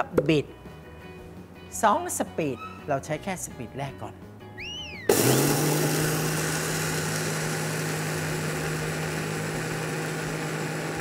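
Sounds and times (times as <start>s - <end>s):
blender motor humming: 5.0s - 11.0s.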